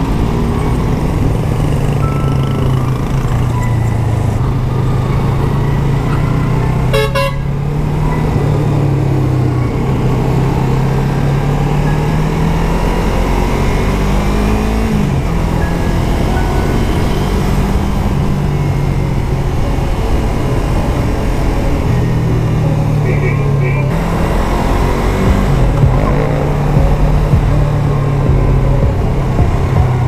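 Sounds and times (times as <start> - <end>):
motorcycle engine running: 0.0 - 30.0
vehicle horn honk: 6.8 - 7.6, 23.0 - 24.0.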